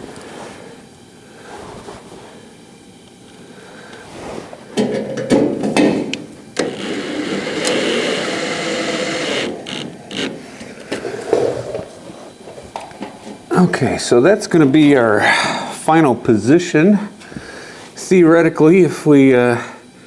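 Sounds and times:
cordless drill driving screws: 6.6 - 10.4.

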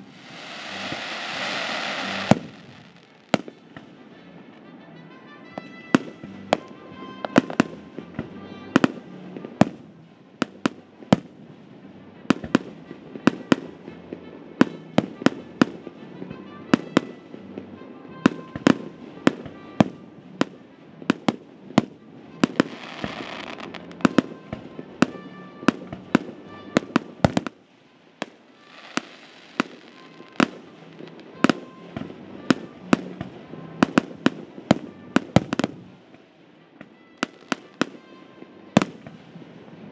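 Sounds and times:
hissing crackle: 0.0 - 3.6
firework bangs: 0.0 - 4.0, 18.3 - 27.6, 28.2 - 36.3, 37.1 - 39.4.

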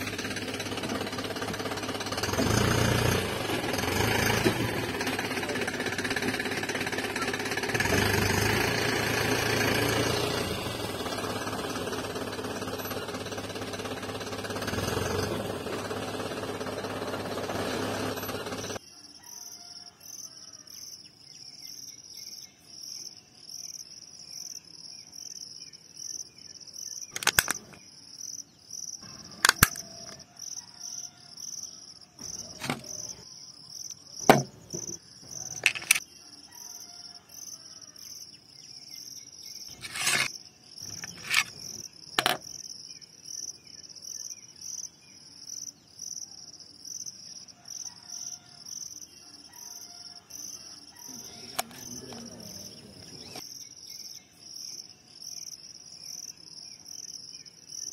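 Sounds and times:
crickets chirping: 18.8 - 57.9
sharp clicks or knocks: 27.1 - 27.8, 29.4 - 30.2, 34.2 - 36.0, 40.9 - 42.4.

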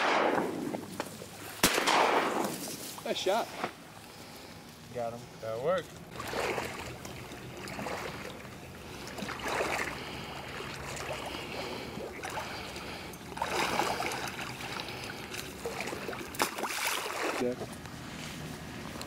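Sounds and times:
water sloshing around waders: 5.9 - 19.0.

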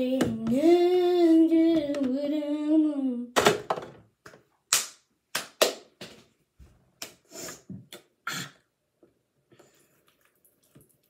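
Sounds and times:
hands slapping together: 4.7 - 6.2, 7.0 - 7.2.

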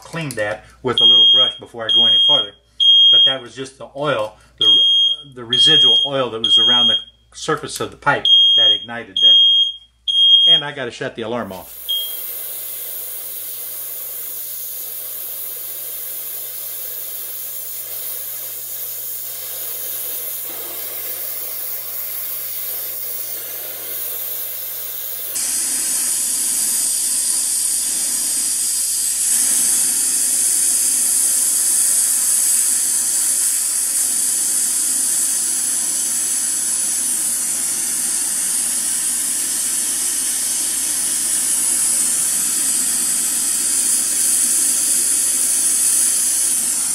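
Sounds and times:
torch flame hissing: 11.5 - 46.9.

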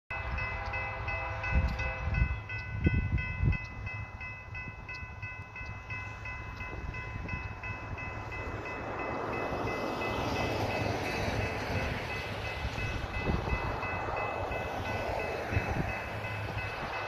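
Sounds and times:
distant locomotive horn: 0.1 - 2.5
crossing warning bell ringing: 0.1 - 17.0
wind gusts: 0.1 - 17.0.

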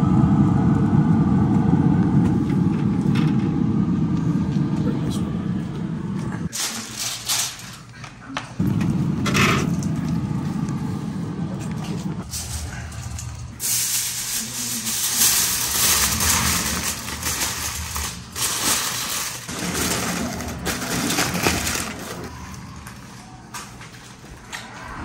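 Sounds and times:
aluminum foil crinkling: 6.5 - 8.3, 12.3 - 22.9.

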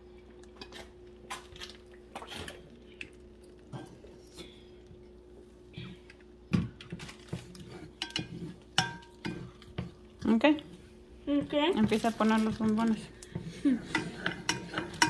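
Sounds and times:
steady low hum: 0.0 - 15.0
utensils clicking on pot and dishes: 7.9 - 9.9, 11.8 - 15.0.

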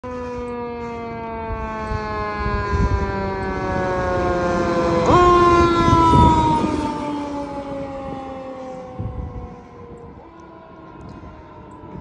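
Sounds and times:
fire engine siren wailing: 0.0 - 12.0
truck engine rumble: 0.3 - 12.0.

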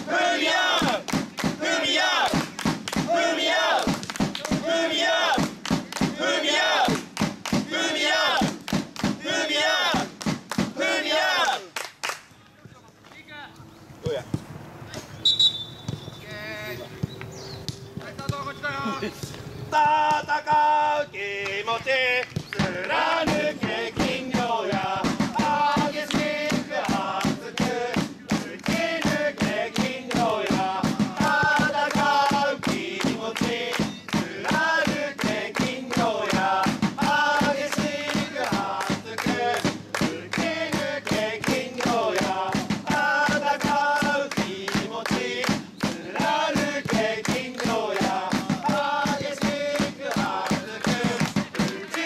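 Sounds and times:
crowd chanting in unison: 0.0 - 11.8, 19.7 - 52.0
steady beat: 21.7 - 52.0.

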